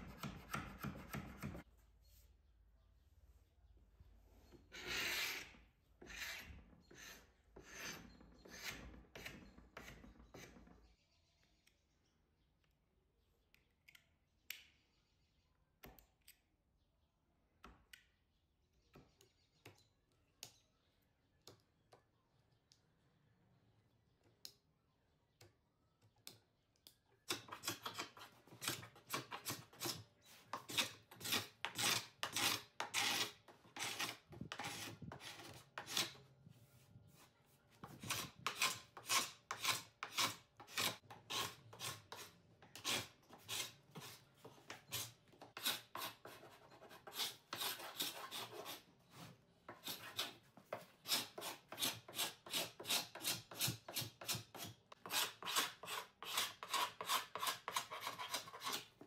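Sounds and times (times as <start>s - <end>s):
paint scraper rasping on wood: 4.7s - 10.7s, 27.3s - 36.3s, 37.8s - 48.9s, 49.7s - 59.0s.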